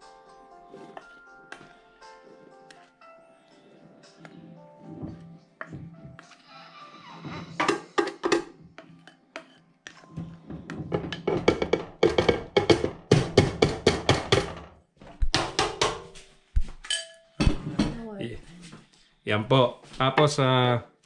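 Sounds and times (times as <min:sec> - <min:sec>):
plastic spoon scraping a bowl: 0:08.8 - 0:11.2.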